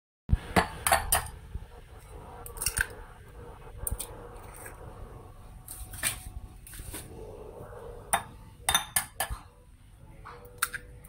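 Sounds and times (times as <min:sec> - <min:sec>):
eggshell crackling: 0:02.0 - 0:05.1.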